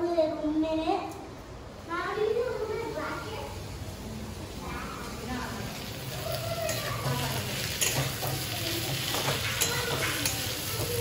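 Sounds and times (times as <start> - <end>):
food sizzling in a frying pan: 2.6 - 11.0
utensil clicking against pan: 6.7 - 11.0.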